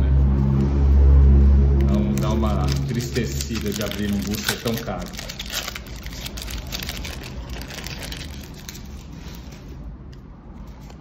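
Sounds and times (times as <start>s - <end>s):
low rumble of street traffic: 0.0s - 11.0s
foil wrapper crinkling and tearing: 1.9s - 9.7s.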